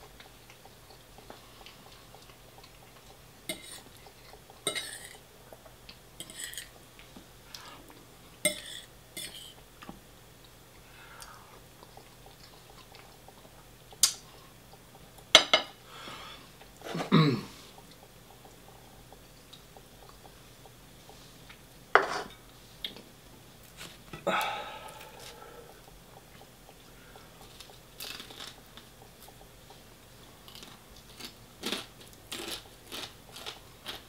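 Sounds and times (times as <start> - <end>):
cutlery clinking and scraping plates: 6.2 - 6.7, 22.0 - 22.4.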